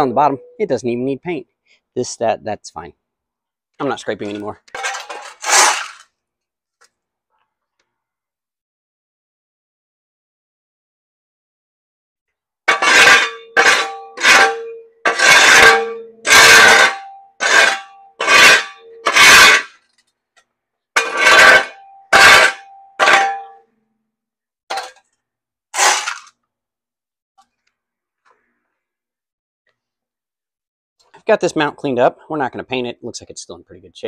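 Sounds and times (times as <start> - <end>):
shovel scraping concrete: 4.2 - 6.1, 12.7 - 19.8, 21.0 - 23.5, 25.8 - 26.3.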